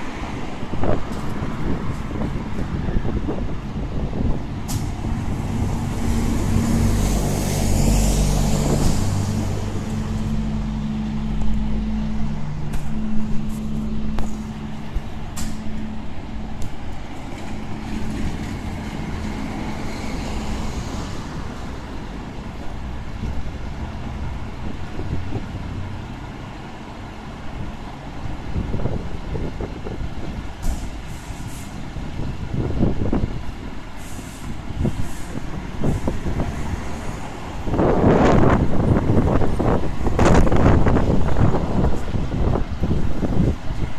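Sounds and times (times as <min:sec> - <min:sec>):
diesel engine running: 0:01.1 - 0:19.9.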